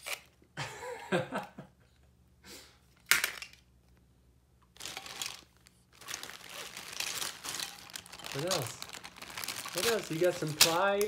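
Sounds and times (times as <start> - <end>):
plastic bag crinkling: 4.7 - 11.0.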